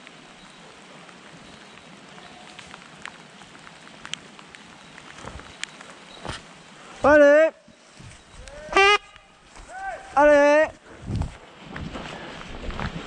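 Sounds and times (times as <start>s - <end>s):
stems swishing against legs: 7.8s - 13.0s.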